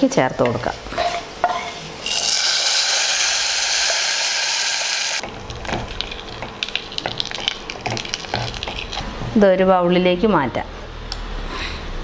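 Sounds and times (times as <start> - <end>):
hot oil sizzling: 1.1 - 9.1.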